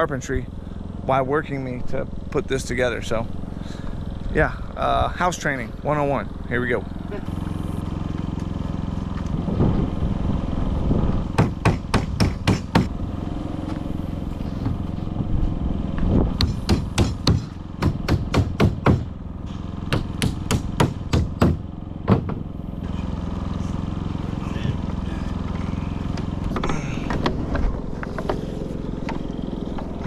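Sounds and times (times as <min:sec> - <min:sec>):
steady low hum: 0:00.0 - 0:30.0
hammer driving nails into wood: 0:11.4 - 0:12.9, 0:16.4 - 0:19.1, 0:19.9 - 0:22.4.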